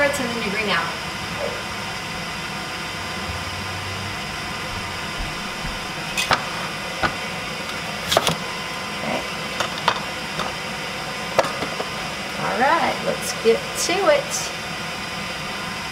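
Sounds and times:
machine hum: 0.0 - 13.6
sharp knocks and clatters: 4.7 - 7.2.

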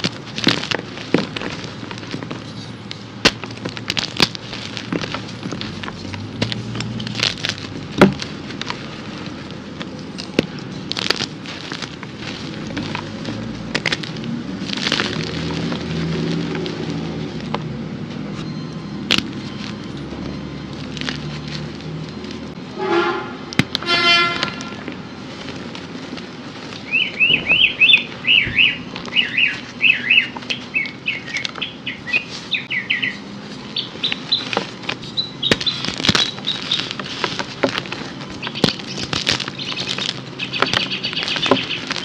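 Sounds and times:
chalk pieces snapping: 0.0 - 17.7, 19.0 - 22.5, 33.7 - 42.0
chalk crunching and crumbling: 0.0 - 18.4, 19.0 - 22.6, 23.5 - 42.0.

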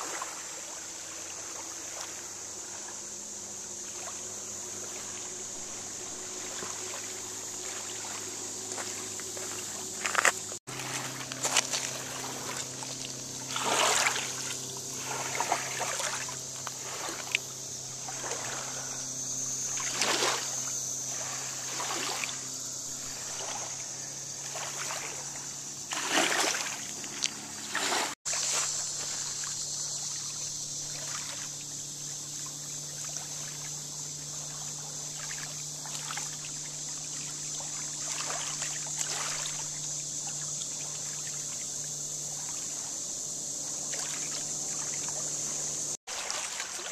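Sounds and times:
steady low hum: 0.0 - 46.0
water lapping on pebbly shore: 3.8 - 19.0, 19.7 - 22.4, 24.5 - 31.6, 34.3 - 42.9, 43.6 - 46.9
steady high hiss: 28.3 - 46.0.

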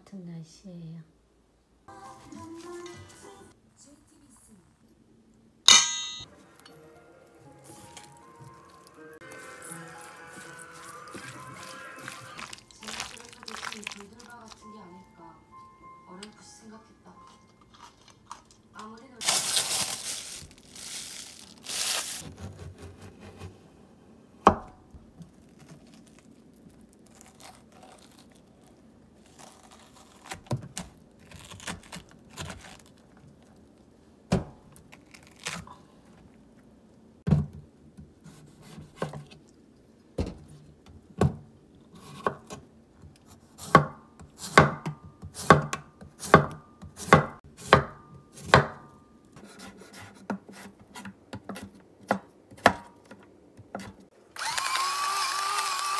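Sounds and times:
knife chopping on wooden board: 43.4 - 48.8.

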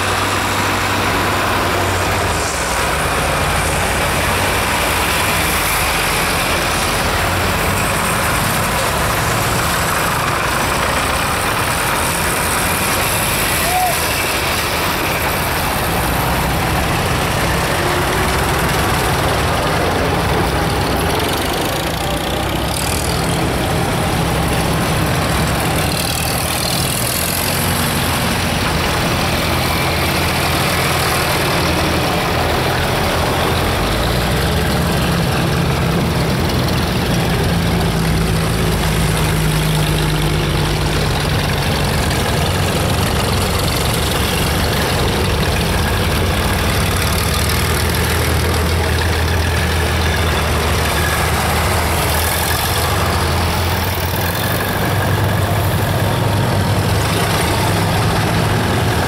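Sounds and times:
tractor engines driving past: 0.0 - 59.0.

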